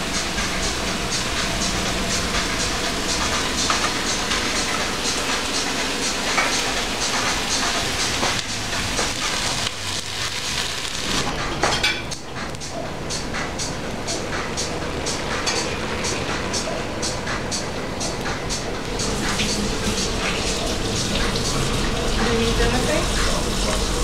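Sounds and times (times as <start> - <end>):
pancakes sizzling in oil: 7.1 - 11.3.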